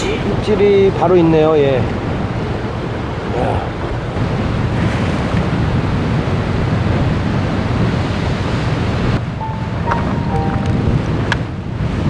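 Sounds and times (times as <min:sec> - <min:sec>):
wind buffeting microphone: 0:00.0 - 0:12.0
sea waves breaking on rocks: 0:04.2 - 0:12.0.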